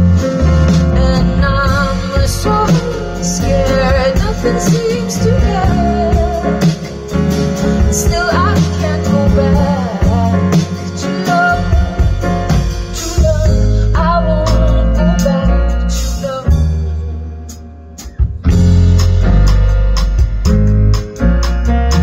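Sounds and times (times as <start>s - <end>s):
electric guitar: 0.0s - 22.0s
piano: 0.0s - 22.0s
woman singing: 0.8s - 17.6s.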